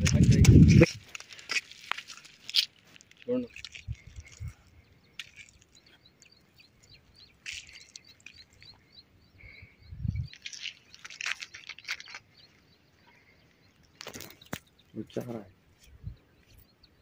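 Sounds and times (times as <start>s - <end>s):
crackling rustles: 0.0s - 8.8s, 10.3s - 12.6s, 13.8s - 15.2s
small bird chirping: 1.5s - 17.0s.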